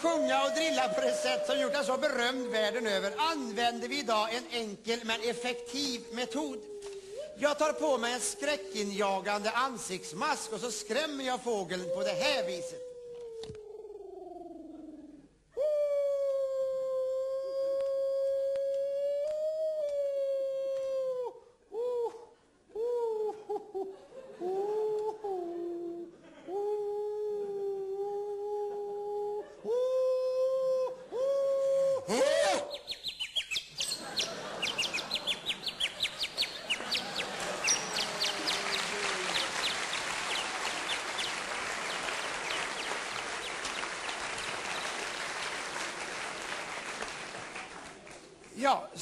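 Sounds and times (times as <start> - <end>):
audience applauding: 0.0 - 3.4, 34.0 - 48.6
man imitating canary call: 11.7 - 23.7, 24.5 - 44.9.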